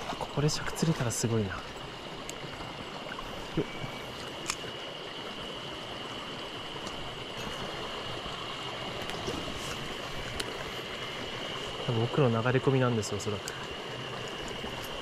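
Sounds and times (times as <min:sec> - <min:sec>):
stream running over stones: 0:00.0 - 0:15.0.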